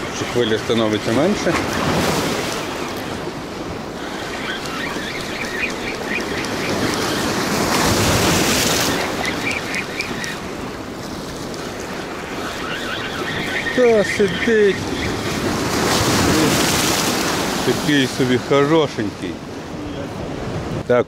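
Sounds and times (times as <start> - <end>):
sea surf washing over rocks: 0.0 - 20.9
fishing reel ticking: 3.9 - 7.8, 8.6 - 10.6
wind on microphone: 19.4 - 20.9.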